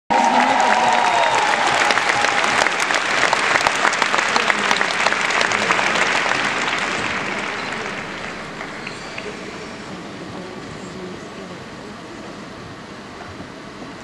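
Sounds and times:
audience applauding: 0:00.1 - 0:10.6.

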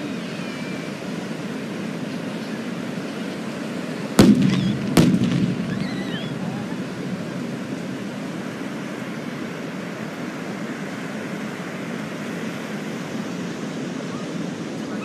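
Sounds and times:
steady rushing noise: 0:00.0 - 0:15.0.

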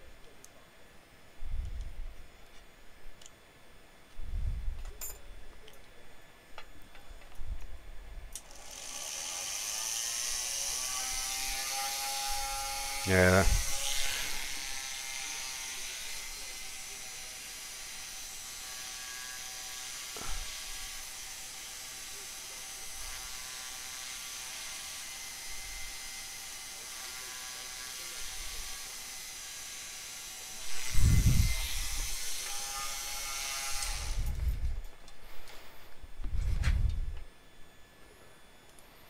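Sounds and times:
rotary tool whining: 0:08.3 - 0:39.0.

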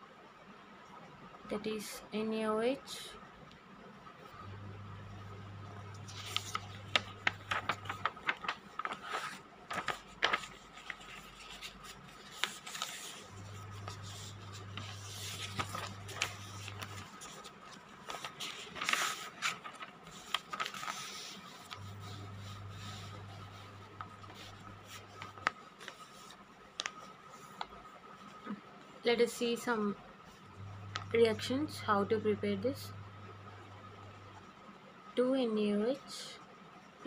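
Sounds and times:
notebook pages turning: 0:05.8 - 0:27.8.

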